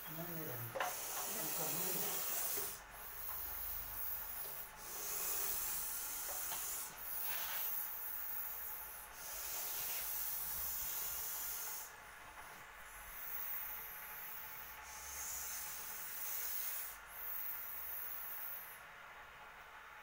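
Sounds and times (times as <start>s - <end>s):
snake hissing: 0.0s - 12.0s, 12.9s - 18.8s.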